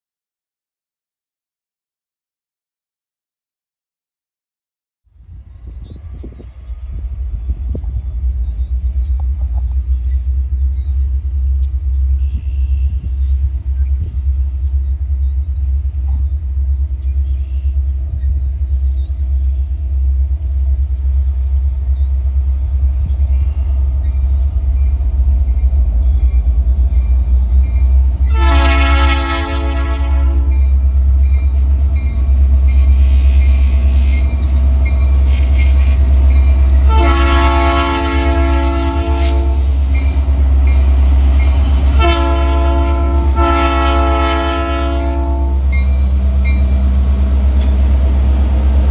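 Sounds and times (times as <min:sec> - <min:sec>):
locomotive low rumble: 0:05.1 - 0:48.9
locomotive air horn blasts: 0:28.2 - 0:30.8, 0:36.8 - 0:39.7, 0:41.8 - 0:45.8.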